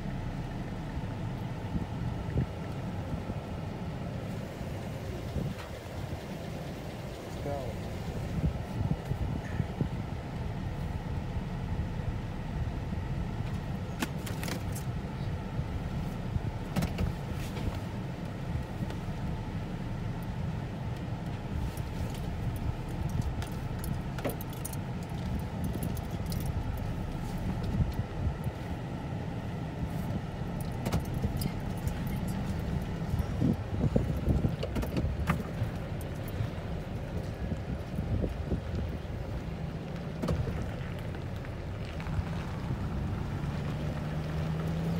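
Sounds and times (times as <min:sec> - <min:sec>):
car engine rumble from inside: 0:00.0 - 0:44.9
light clicks and rattles: 0:21.7 - 0:28.0.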